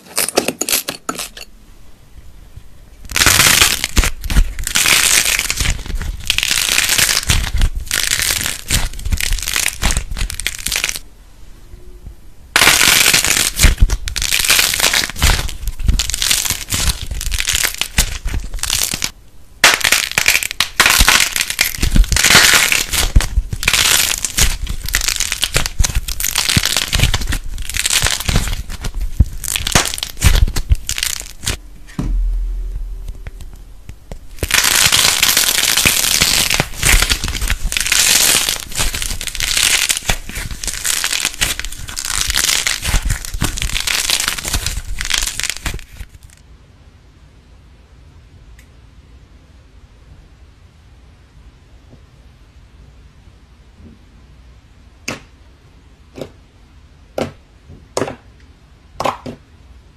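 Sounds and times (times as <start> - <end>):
crunchy slime crackling: 3.0 - 11.1, 12.5 - 46.4.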